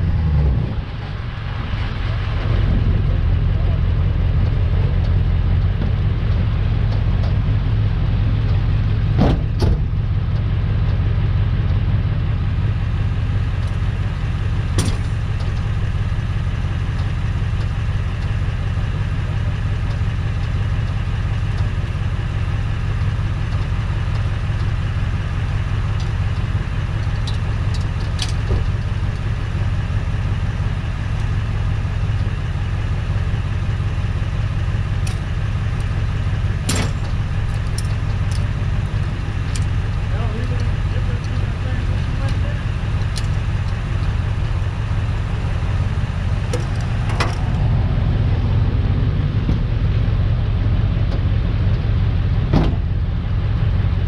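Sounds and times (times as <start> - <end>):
tow truck engine idling: 0.0 - 54.0.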